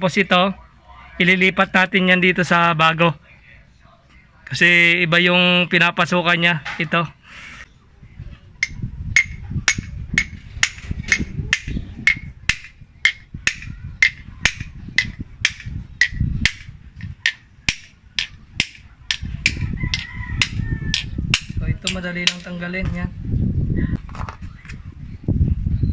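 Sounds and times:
hammer tapping on metal: 8.6s - 22.5s.

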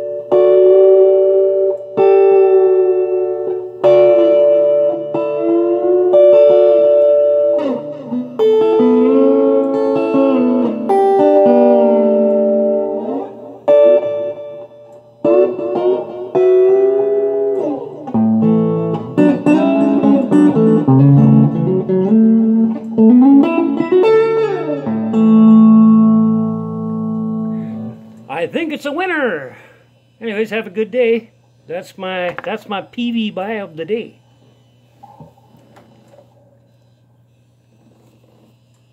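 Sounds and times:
clean electric guitar: 0.0s - 28.6s.

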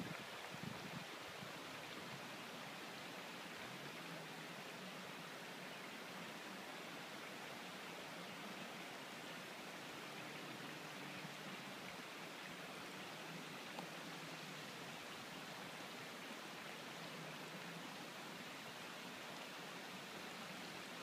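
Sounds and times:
faint outdoor hiss: 0.0s - 21.0s.

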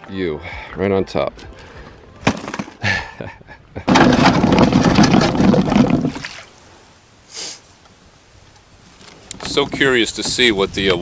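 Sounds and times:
box knocking in a canoe: 3.9s - 6.3s
canoe scraping on gravel: 3.9s - 6.6s
splash-like hiss: 7.3s - 7.7s.

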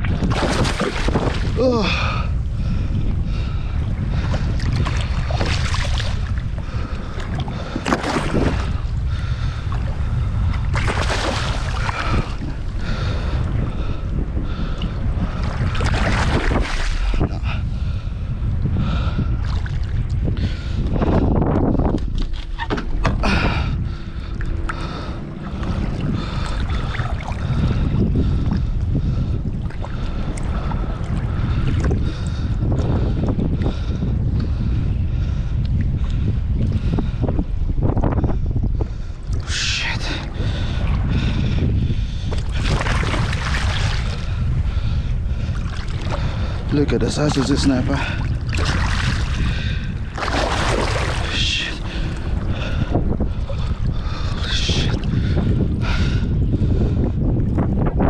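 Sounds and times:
wind rumbling on microphone: 0.0s - 58.0s
water splashing: 0.1s - 2.2s, 4.4s - 10.0s, 10.6s - 13.3s, 15.4s - 17.6s, 22.1s - 27.9s, 42.4s - 44.4s, 45.4s - 52.8s.

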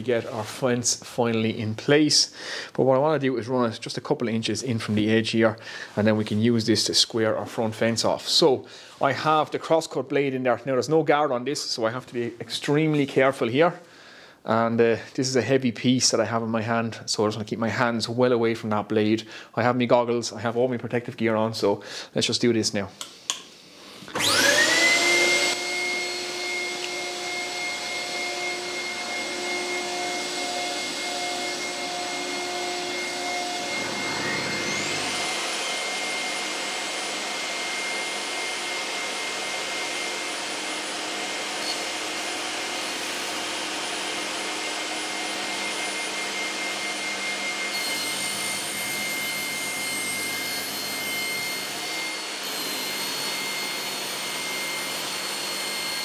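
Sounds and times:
table saw whine: 24.0s - 56.0s
saw cutting plywood: 24.2s - 56.0s
second motor high whine: 31.2s - 35.8s.

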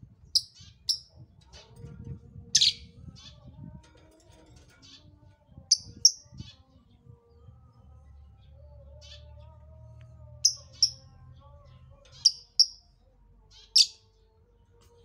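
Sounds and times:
lovebird chirping: 0.3s - 1.1s, 2.6s - 2.9s, 10.4s - 11.0s, 12.1s - 12.9s, 13.5s - 14.0s.

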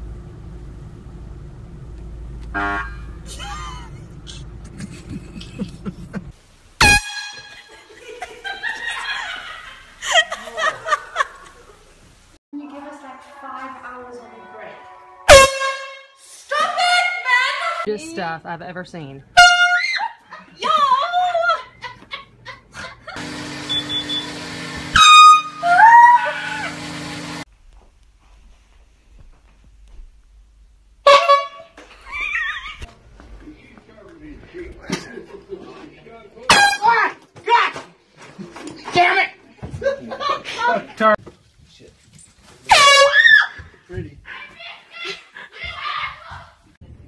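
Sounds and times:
low steady rumble: 0.0s - 7.3s
loud air horn blast: 2.5s - 3.3s, 6.8s - 7.8s, 14.2s - 17.2s, 19.4s - 19.8s, 23.2s - 27.4s, 31.0s - 31.8s.

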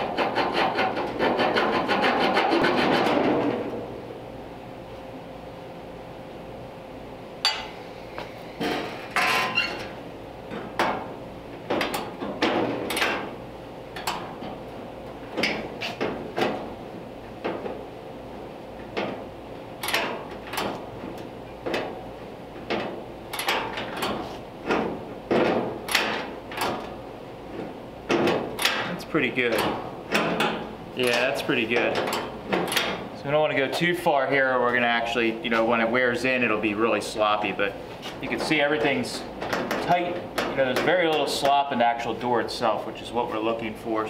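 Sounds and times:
metal clacks and knocks: 28.1s - 33.0s, 38.3s - 41.6s.

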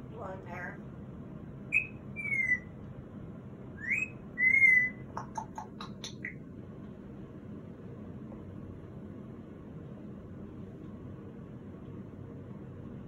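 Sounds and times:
parrot whistling: 1.7s - 2.7s, 3.8s - 6.4s
parrot clicks and chirps: 3.8s - 6.4s.

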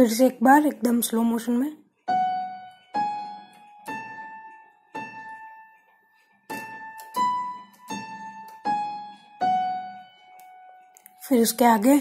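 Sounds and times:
electronic keyboard single notes: 2.1s - 11.2s.

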